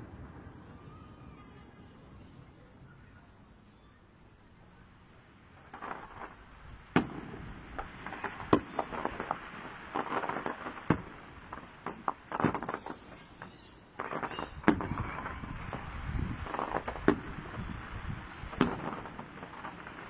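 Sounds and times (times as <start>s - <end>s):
fireworks crackling: 0.0s - 20.0s
firework shells bursting: 5.6s - 20.0s.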